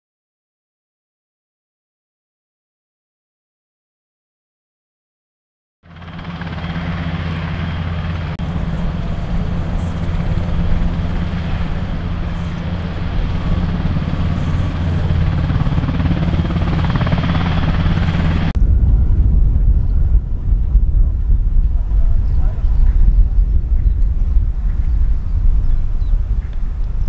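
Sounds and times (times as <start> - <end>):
helicopter rotor throb: 5.8 - 27.0
high turbine whine: 5.9 - 27.0.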